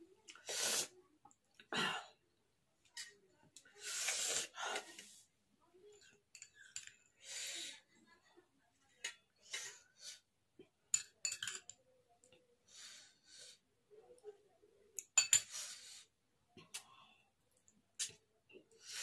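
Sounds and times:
cutlery clinking on metal plate: 10.9 - 11.8, 15.1 - 15.6.

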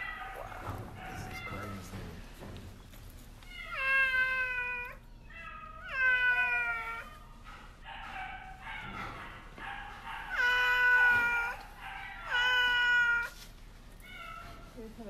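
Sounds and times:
cat meowing in pain: 5.7 - 7.2, 10.3 - 11.6, 12.3 - 13.4.

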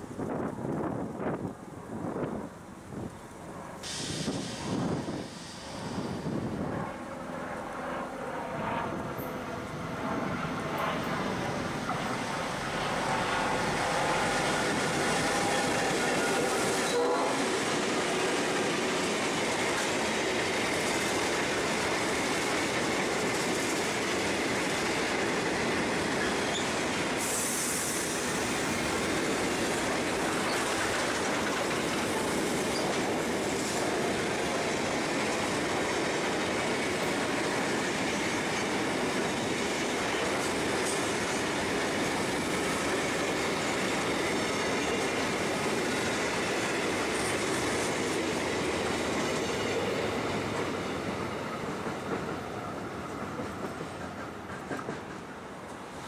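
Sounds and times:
freight train wheels on rails: 0.0 - 56.0.

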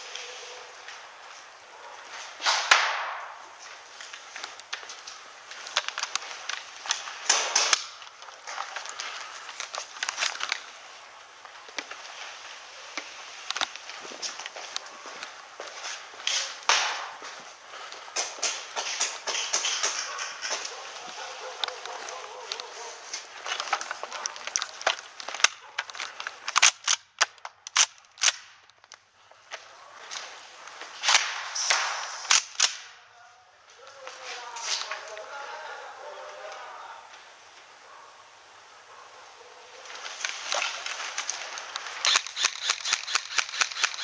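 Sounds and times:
airsoft gunfire pops: 2.4 - 3.3, 16.7 - 17.2
airsoft gun clicks and pops: 5.7 - 10.7, 13.5 - 13.8, 23.5 - 29.0, 31.0 - 32.9, 40.5 - 44.0.

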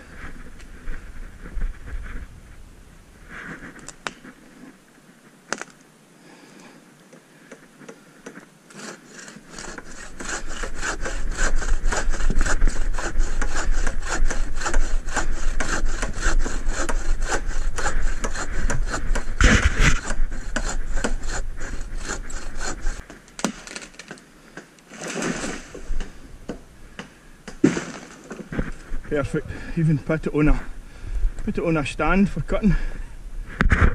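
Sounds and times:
bow saw cutting wood: 7.5 - 23.8.

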